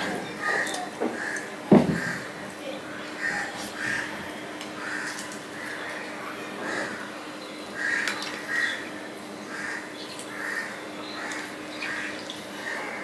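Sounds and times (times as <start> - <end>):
crows cawing: 0.4 - 2.3, 3.2 - 4.2, 4.8 - 7.1, 7.8 - 8.8, 9.5 - 13.0.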